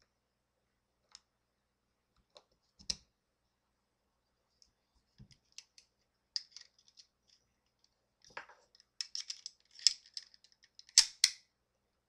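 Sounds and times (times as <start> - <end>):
small metal clicks: 5.4 - 11.4.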